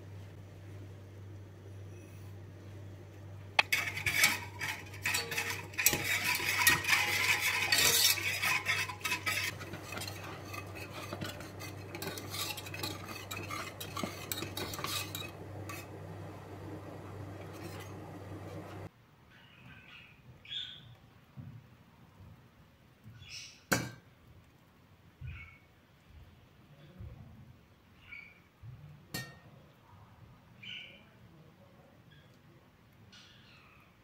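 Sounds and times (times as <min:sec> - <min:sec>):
low steady hum: 0:00.0 - 0:18.9
whisk clicking against pot: 0:03.6 - 0:18.9.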